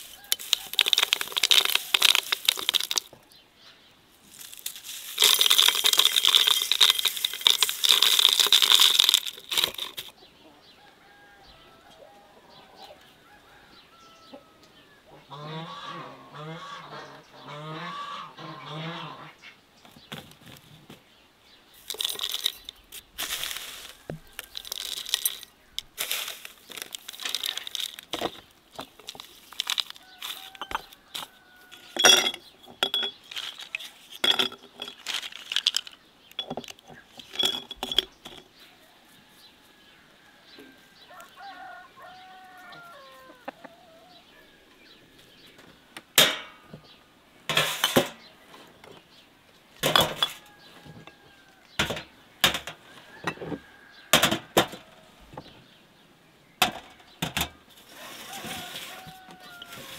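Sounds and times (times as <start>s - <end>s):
dry spices rustling and pouring: 0.0s - 3.1s, 4.2s - 10.1s, 21.8s - 32.0s, 33.2s - 36.0s
clinks against glass jars: 0.0s - 3.2s, 4.4s - 10.1s, 21.8s - 38.6s, 49.8s - 51.2s
distant fowl calling: 10.2s - 19.7s, 38.7s - 45.6s.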